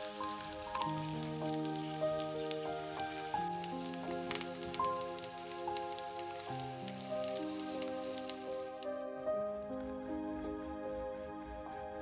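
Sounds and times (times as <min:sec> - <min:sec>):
sausages sizzling in a frying pan: 0:00.0 - 0:08.9
soft background music: 0:00.0 - 0:12.0.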